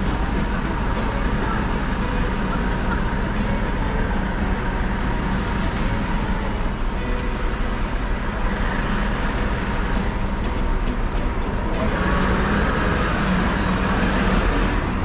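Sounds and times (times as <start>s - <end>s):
truck diesel engine running: 0.0s - 15.0s.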